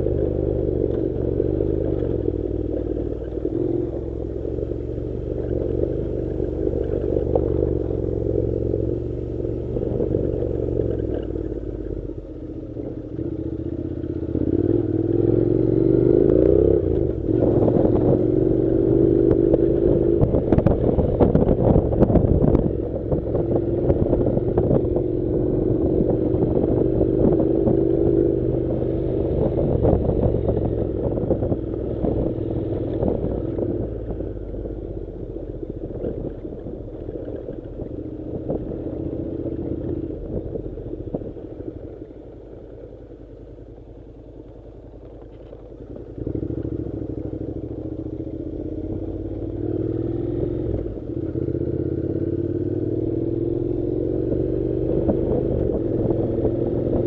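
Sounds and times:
motorcycle engine running: 0.0s - 57.0s
clattering from rough road: 29.3s - 51.5s.

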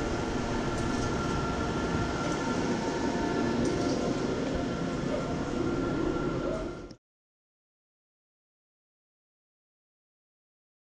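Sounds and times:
high machine whine: 0.0s - 7.0s.

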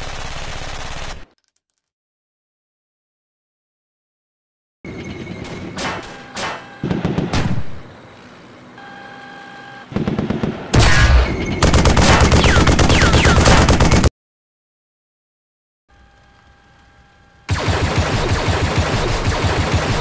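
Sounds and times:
rapid machine-gun fire: 0.0s - 1.2s, 9.9s - 14.1s, 17.5s - 20.0s
sharp gunshots: 5.8s - 7.9s, 9.9s - 14.1s, 17.5s - 20.0s.

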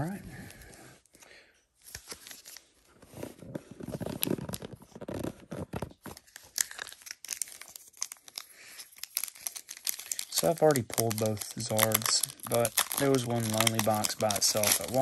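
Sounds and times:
foil wrappers crinkling and tearing: 3.8s - 15.0s.

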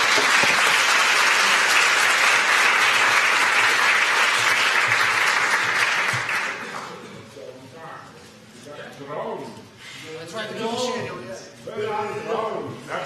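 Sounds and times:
audience applauding: 0.0s - 7.0s.

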